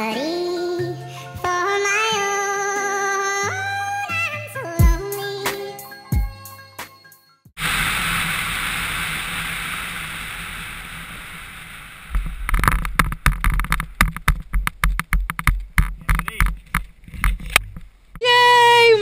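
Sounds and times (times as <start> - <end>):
wind buffeting thumps: 12.1 - 18.2.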